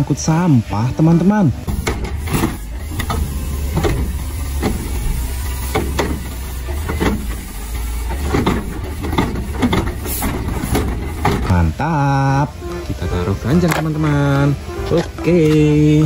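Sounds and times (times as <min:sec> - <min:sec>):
diesel engine running: 0:00.0 - 0:16.0
trash knocking and clattering: 0:01.6 - 0:11.8.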